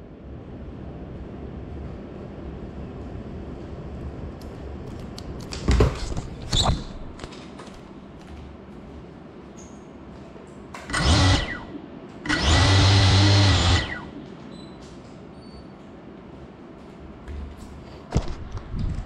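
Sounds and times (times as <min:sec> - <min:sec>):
drone motors revving and whirring: 0:10.9 - 0:14.1.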